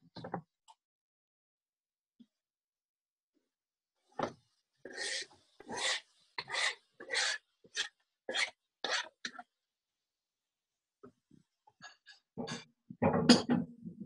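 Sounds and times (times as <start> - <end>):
scraping food off cutting board: 4.8 - 9.4.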